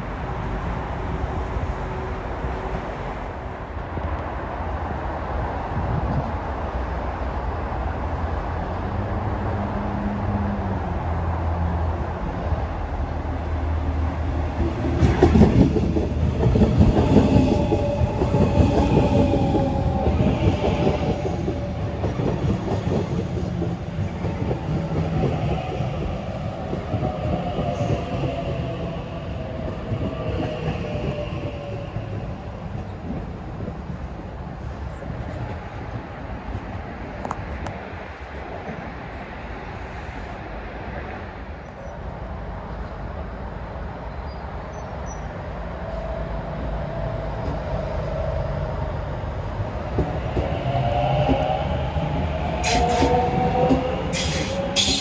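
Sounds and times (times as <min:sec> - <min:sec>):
train braking whine: 0:52.6 - 0:55.0.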